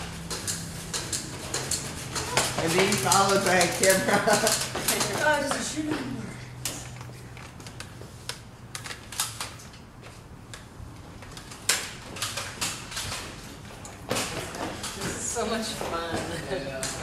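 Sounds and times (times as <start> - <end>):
sharp clicks and knocks: 0.2 - 3.8.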